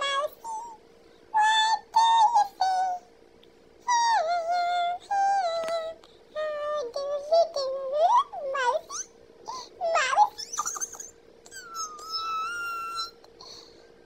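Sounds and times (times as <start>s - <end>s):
high-pitched squeaky voice: 0.0s - 0.8s, 3.9s - 13.4s
faint steady hum: 0.0s - 14.0s.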